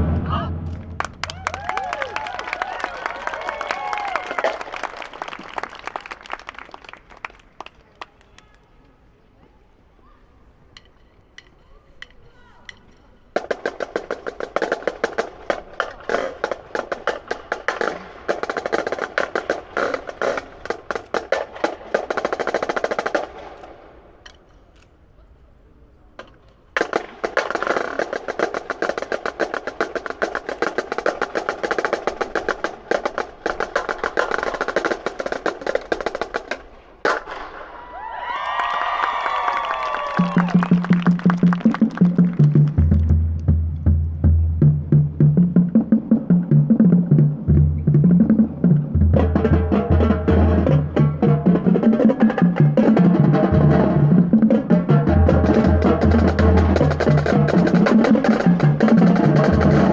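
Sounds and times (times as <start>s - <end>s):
snare and bass drumline: 0.0s - 2.4s, 13.3s - 23.5s, 26.8s - 37.4s, 40.0s - 59.9s.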